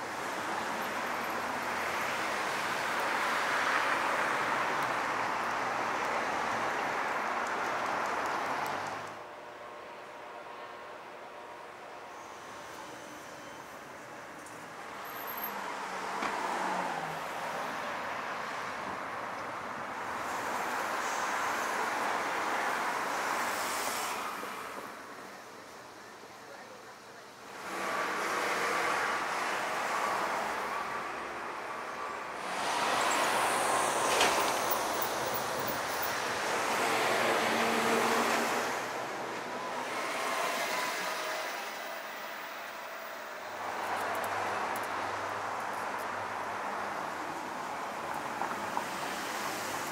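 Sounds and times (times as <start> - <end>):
steady traffic hum: 0.0 - 49.9
cars driving past: 27.5 - 49.9
passing vehicle: 27.6 - 49.9.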